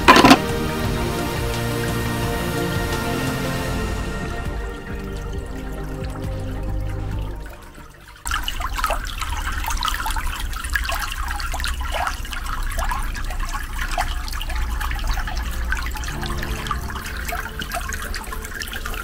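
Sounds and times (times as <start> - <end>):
bubbly plops: 0.0 - 0.5
water splashing into pool: 0.0 - 0.7, 4.5 - 19.0.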